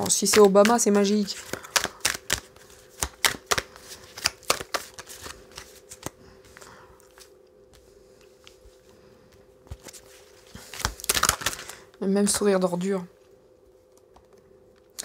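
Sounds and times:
sharp card snaps: 0:00.0 - 0:06.1
cards being shuffled: 0:00.0 - 0:08.9, 0:09.6 - 0:11.9.

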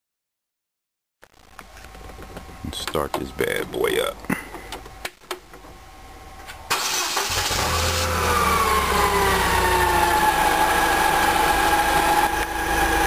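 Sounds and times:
forklift engine starting: 0:06.7 - 0:13.0.

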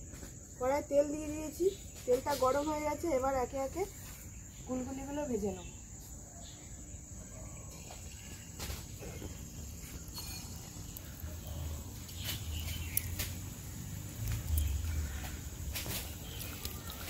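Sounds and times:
batter sizzling in hot oil: 0:07.8 - 0:17.0.

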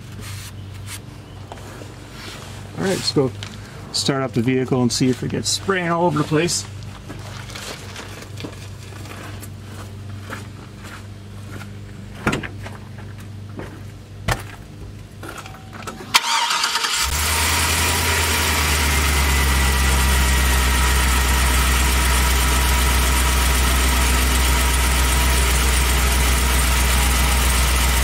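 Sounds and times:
engine cranking and idling: 0:15.8 - 0:28.0.

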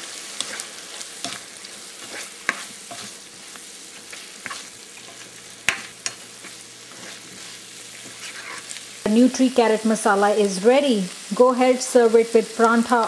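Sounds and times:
vegetables sizzling in a pan: 0:00.0 - 0:13.0
spoon scraping a pan: 0:00.2 - 0:09.0.

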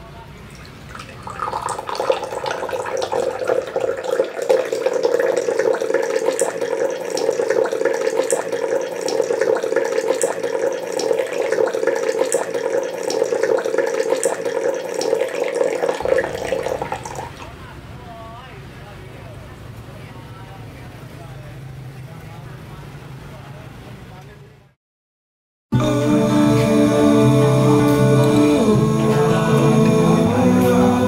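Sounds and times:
coffee bubbling in a kettle: 0:00.5 - 0:17.5.

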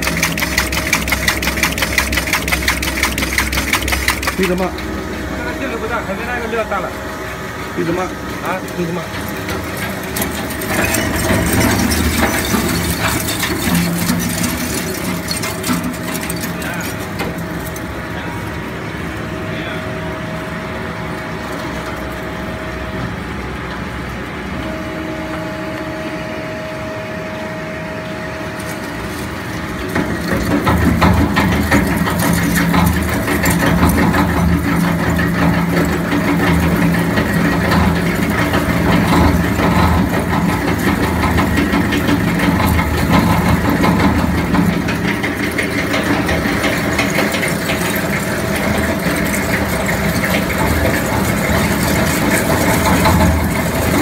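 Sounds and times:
metal scrap crackling and rattling: 0:00.0 - 0:06.8, 0:07.8 - 0:18.5, 0:28.5 - 0:54.0
shredder machine hum: 0:00.0 - 0:54.0.

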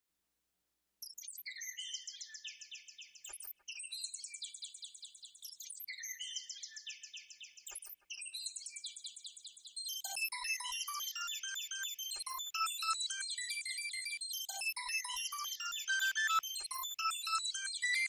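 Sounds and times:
synthesized bird chirps: 0:03.2 - 0:04.0, 0:07.6 - 0:08.5, 0:09.8 - 0:18.0.

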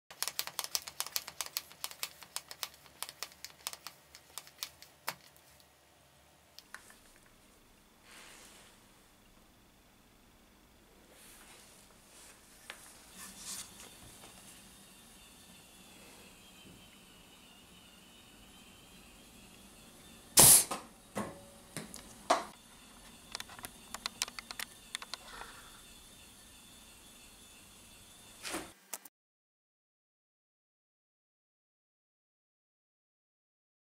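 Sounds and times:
sharp mechanical clicks: 0:00.1 - 0:05.4, 0:23.3 - 0:25.3
compressed air burst: 0:20.4 - 0:20.8.

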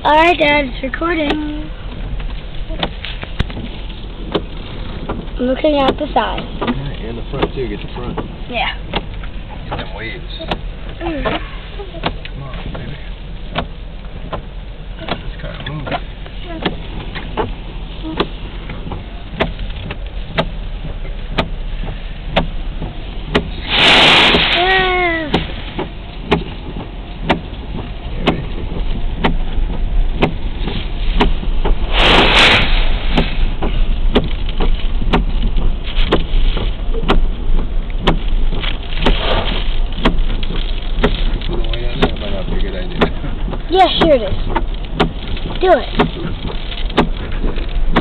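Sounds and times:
rain tapping on car: 0:00.0 - 0:48.0
surf crashing against seawall: 0:23.5 - 0:25.7
loud rushing bursts: 0:23.5 - 0:25.8, 0:29.8 - 0:35.0.

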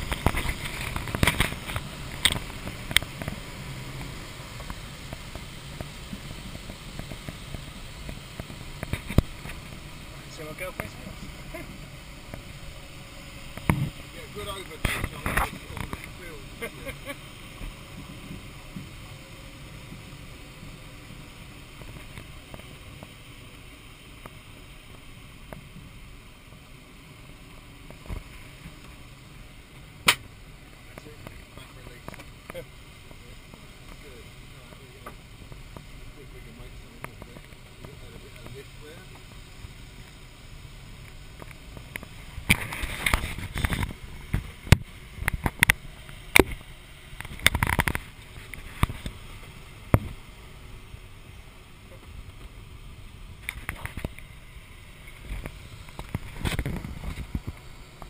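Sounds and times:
camera knocking and rubbing: 0:00.0 - 0:03.4
airflow rushing past glider: 0:00.0 - 0:26.6
airflow hiss in cockpit: 0:00.0 - 0:58.0.

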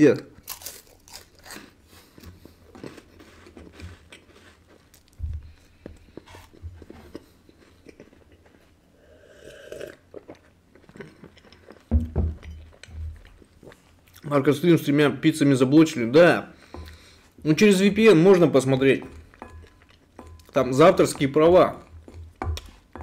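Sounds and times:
person chewing crisp wafer: 0:00.4 - 0:11.9, 0:19.2 - 0:20.6.

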